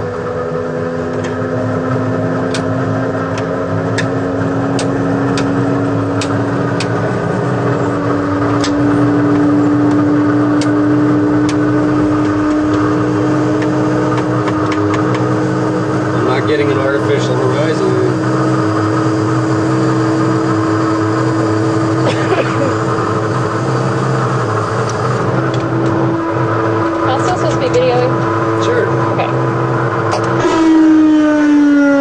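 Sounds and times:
flywheel starter whine rising: 0.0 - 32.0.

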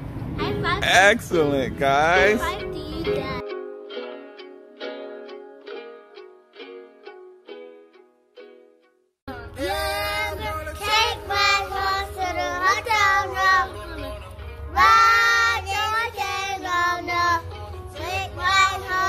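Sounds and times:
children singing: 9.6 - 17.4, 18.0 - 19.0.

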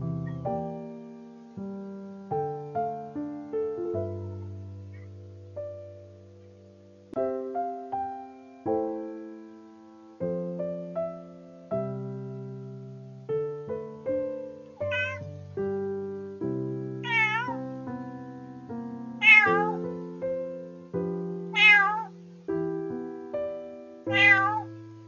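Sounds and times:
soft piano music: 0.0 - 25.0
cat meowing: 14.8 - 15.4, 17.0 - 17.6, 19.2 - 20.0, 21.5 - 22.2, 24.1 - 24.8.

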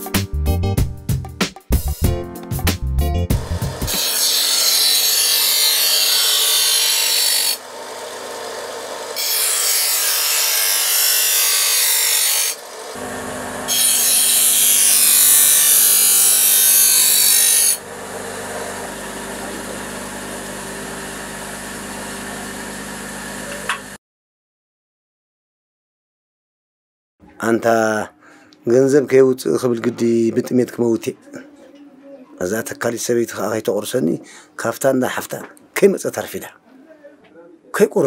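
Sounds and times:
bench grinder running: 3.3 - 24.0
knife blade grinding on wheel: 3.4 - 22.9.

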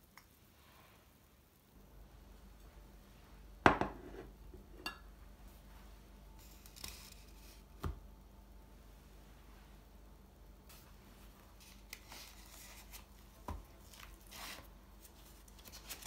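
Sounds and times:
glass set down on table: 3.7 - 5.0
glass clink: 4.8 - 5.1.

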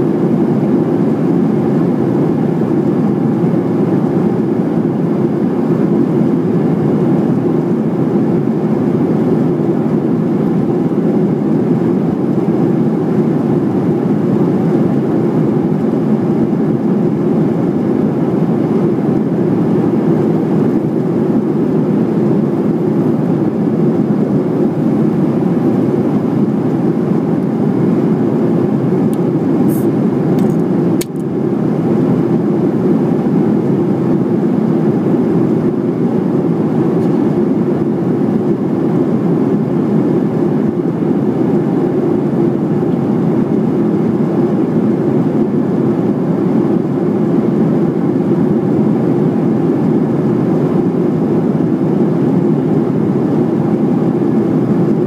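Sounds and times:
airplane cabin roar: 0.0 - 55.0.

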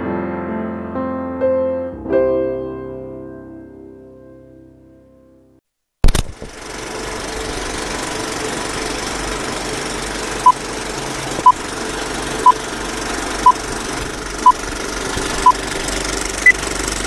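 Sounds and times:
film projector clattering: 6.1 - 17.0.

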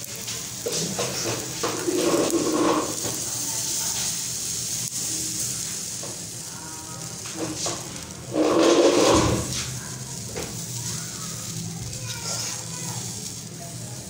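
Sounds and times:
batter sizzling on a griddle: 0.0 - 14.0.

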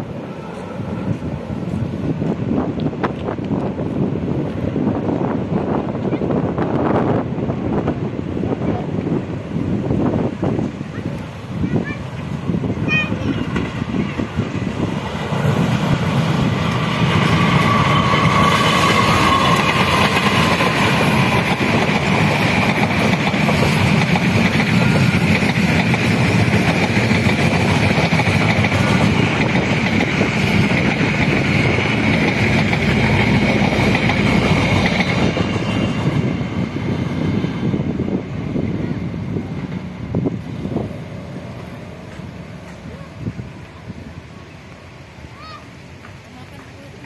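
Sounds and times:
diesel train engine rumble: 0.0 - 47.0
train wheels on rails: 0.0 - 47.0
high wheel squeal: 17.0 - 21.5.

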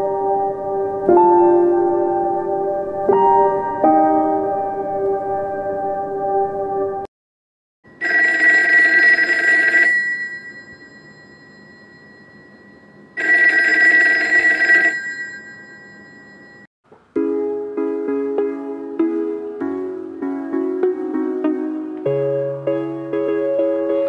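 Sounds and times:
telephone bell ringing: 7.9 - 16.7.

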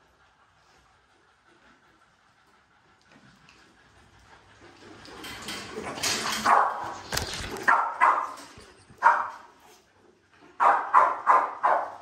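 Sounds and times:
dog barking: 6.4 - 7.0, 7.7 - 8.4, 9.0 - 9.5, 10.6 - 12.0.

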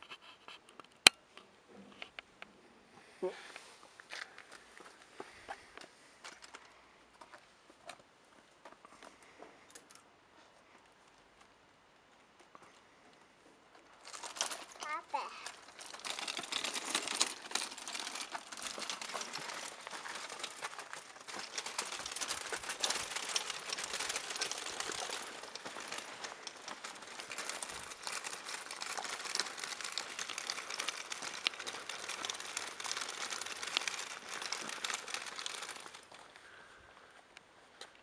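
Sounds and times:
plastic wheels rattling on cobblestones: 13.7 - 37.2.

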